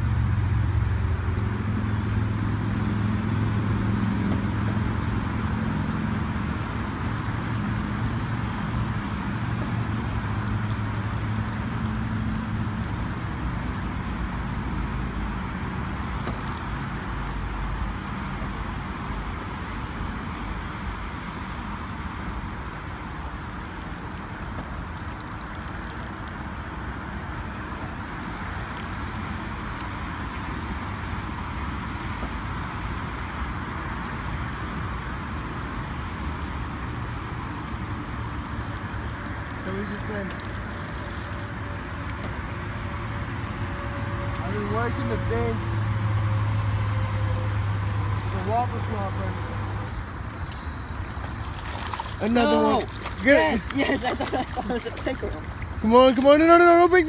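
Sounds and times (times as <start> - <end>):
road traffic noise: 0.0 - 57.0.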